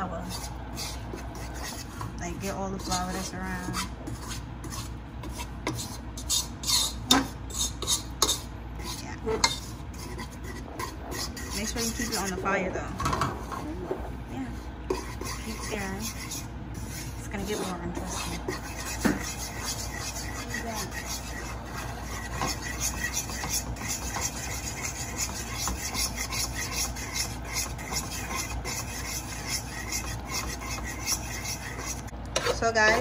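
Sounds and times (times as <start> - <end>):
metal fork scraping a pot: 0.0 - 13.7, 14.9 - 33.0.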